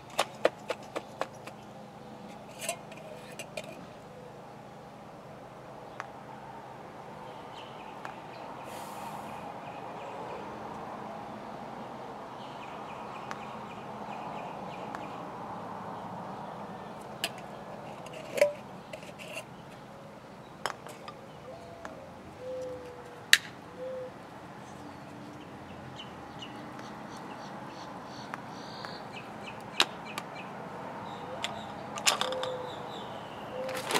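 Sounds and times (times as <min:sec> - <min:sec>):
jars clicking and knocking: 0:00.0 - 0:01.6, 0:02.3 - 0:03.9, 0:17.2 - 0:19.5
outdoor background hum: 0:00.0 - 0:33.9.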